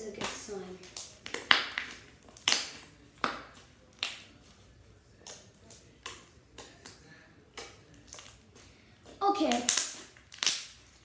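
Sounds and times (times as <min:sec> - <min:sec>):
slime squished by hand: 0:05.2 - 0:11.0.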